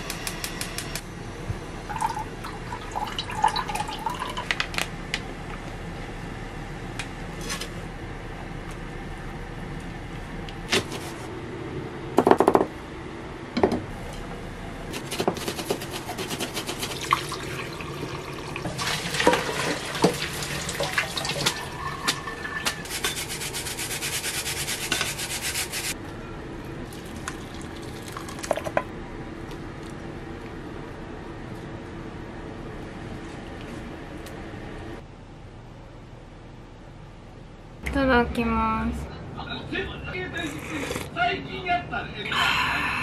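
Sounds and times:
tap water running into sink: 17.1s - 22.4s.

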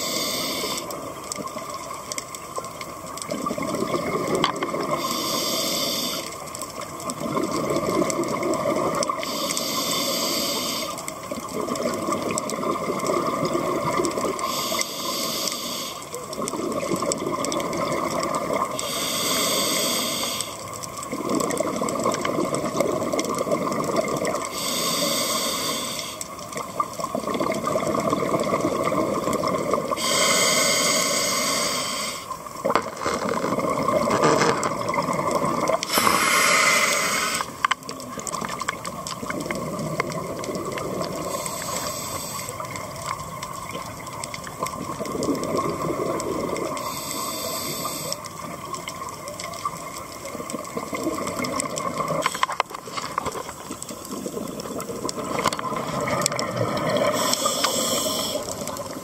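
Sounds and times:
regulator inhalation hiss: 0.0s - 1.0s, 4.9s - 6.5s, 9.1s - 11.0s, 14.4s - 16.2s, 18.8s - 20.7s, 24.5s - 26.3s, 29.9s - 32.4s, 35.8s - 37.6s, 41.2s - 42.7s, 46.8s - 48.3s, 57.0s - 59.0s
exhaled bubbles rushing: 3.2s - 5.0s, 7.0s - 9.2s, 11.3s - 14.4s, 16.3s - 18.8s, 21.1s - 24.5s, 26.6s - 30.0s, 32.5s - 36.2s, 38.0s - 41.5s, 42.6s - 46.9s, 48.3s - 57.4s.

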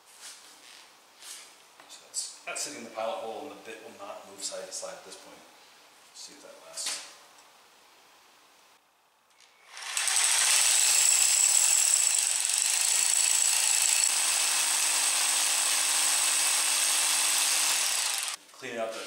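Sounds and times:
rotary hammer drilling concrete: 9.6s - 18.4s.

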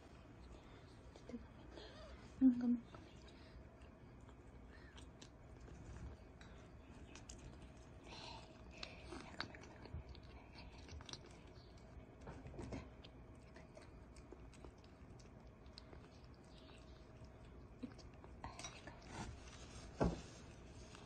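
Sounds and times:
kitten licking wet clicks: 6.4s - 19.1s.

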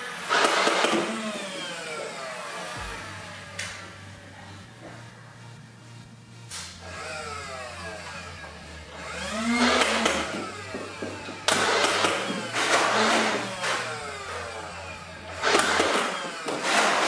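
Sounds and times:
toy blaster motor whine: 0.0s - 3.0s, 6.6s - 17.0s.

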